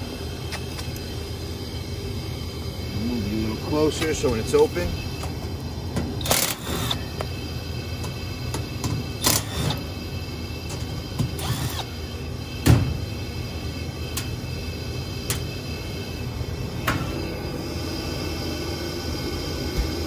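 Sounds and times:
steady low hum: 0.0s - 20.0s
cordless drill spinning: 6.2s - 7.6s, 9.1s - 9.8s, 11.3s - 12.3s.

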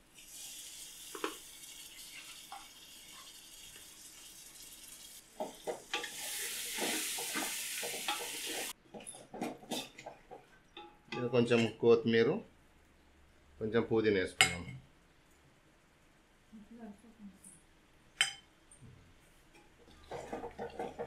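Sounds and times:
food sizzling in a pan: 0.0s - 8.8s
spoon scraping and knocking pan: 5.4s - 11.7s, 19.6s - 21.0s.

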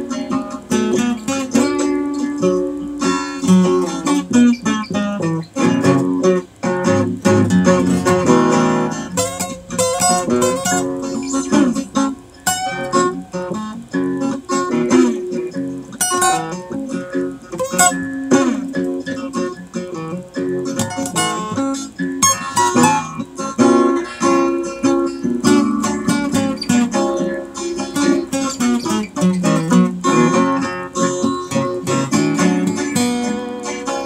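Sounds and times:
acoustic guitar playing: 0.0s - 34.0s.

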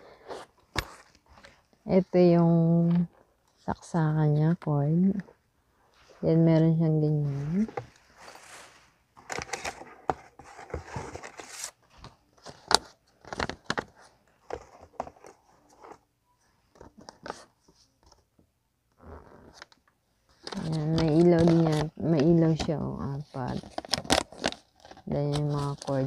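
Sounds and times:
plastic and paper crinkling: 20.3s - 26.0s.

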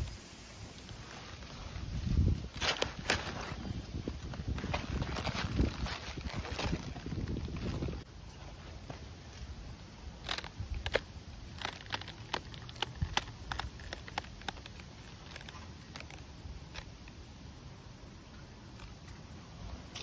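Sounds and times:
wind rumble on microphone: 1.3s - 8.1s
sharp clicks and crackles: 10.2s - 17.2s.

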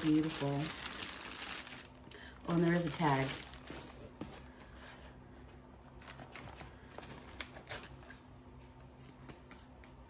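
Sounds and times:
hands rustling among leaves: 0.0s - 1.9s
low steady hum: 0.0s - 10.0s.

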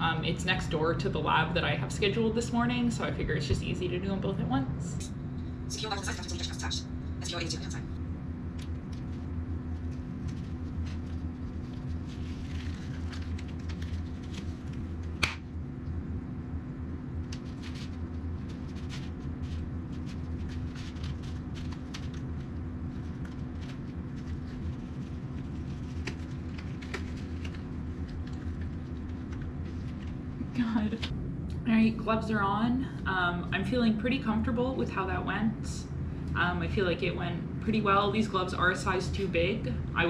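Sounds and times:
low room hum: 0.0s - 40.0s
paper and glove crackling: 8.6s - 15.4s, 17.2s - 30.4s.

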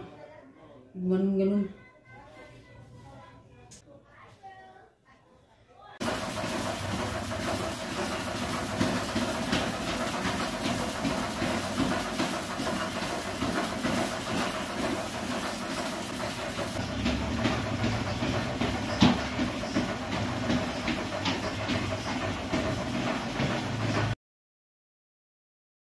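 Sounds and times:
footfalls on treadmill belt: 6.0s - 24.2s
treadmill rattle and hum: 6.0s - 24.2s.

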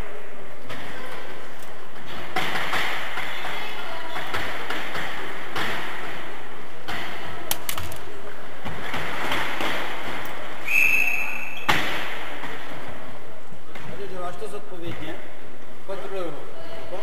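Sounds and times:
bicycles in echoing hall: 0.0s - 17.0s
whistle blast: 10.6s - 11.7s.

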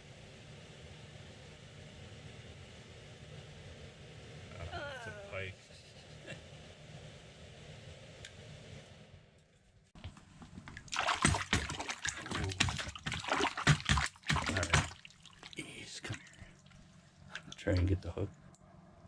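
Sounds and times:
fish splashing in water: 10.7s - 17.8s.

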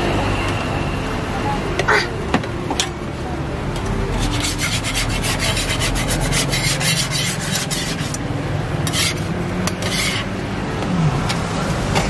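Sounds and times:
metal spatula scraping griddle: 4.1s - 8.2s, 8.8s - 10.4s.

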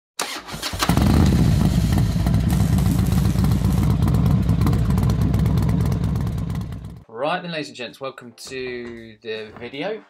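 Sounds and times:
motorcycle engine idling: 1.0s - 7.0s.

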